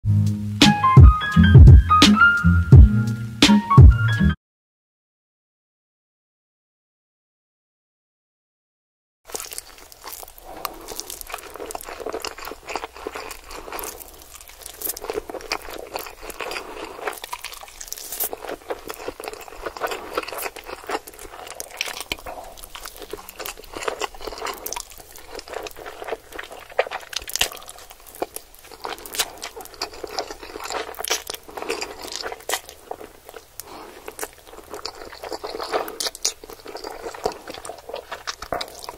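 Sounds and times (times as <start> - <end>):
slurping and chewing noodles: 9.3 - 38.9.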